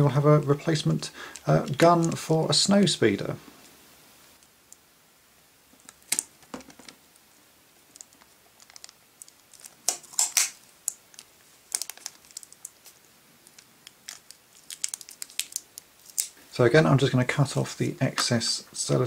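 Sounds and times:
sticky tape ripping off roll: 9.6s - 10.6s.

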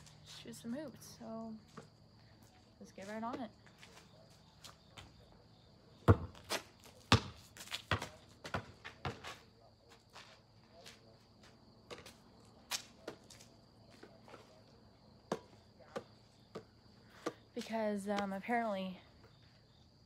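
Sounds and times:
basketball bouncing: 6.0s - 9.3s, 15.3s - 17.4s.

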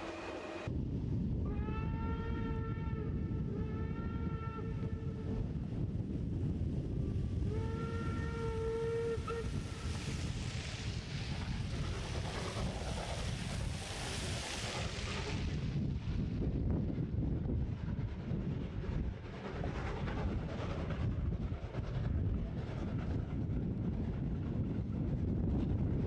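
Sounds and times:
train whistle: 1.4s - 5.4s, 7.4s - 10.0s
hiss: 9.4s - 15.7s.

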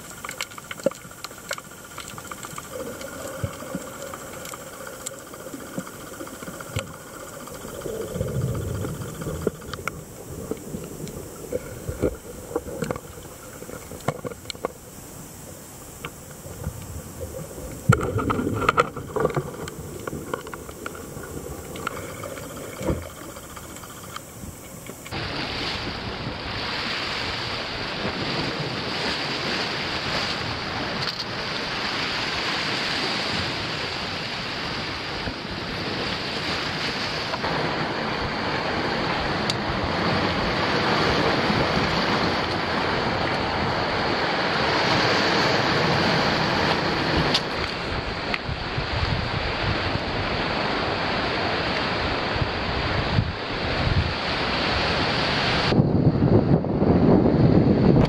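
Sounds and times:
sharp underwater clicks: 0.0s - 25.2s, 46.6s - 48.5s
surf breaking over rocks: 0.0s - 55.9s
muffled underwater water wash: 0.0s - 58.0s.

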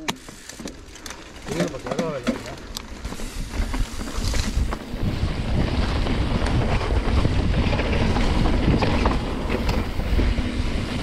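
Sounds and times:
bike clicks and rattles: 0.0s - 11.0s
wind buffeting microphone: 2.9s - 11.0s.

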